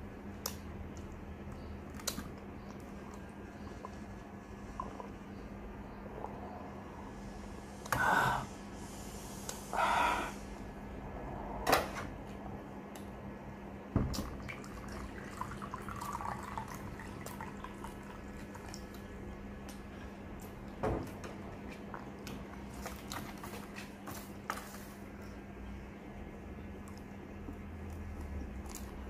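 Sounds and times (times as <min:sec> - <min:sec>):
water trickling into bowl: 0:14.2 - 0:19.0.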